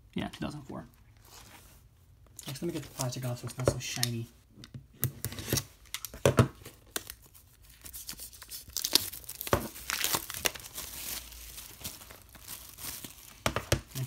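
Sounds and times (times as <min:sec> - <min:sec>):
plastic wrap crinkling and tearing: 0:05.4 - 0:14.0.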